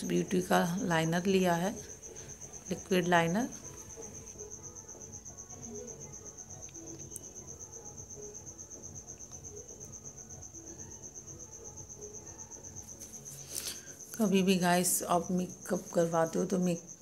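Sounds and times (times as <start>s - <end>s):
faint low background noise: 0.0s - 17.0s
high-pitched insect-like trill: 0.0s - 17.0s.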